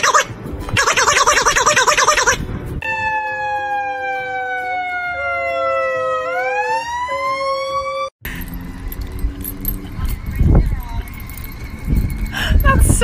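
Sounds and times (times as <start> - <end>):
siren wailing: 0.0 - 8.1
steady siren tone: 0.0 - 9.4.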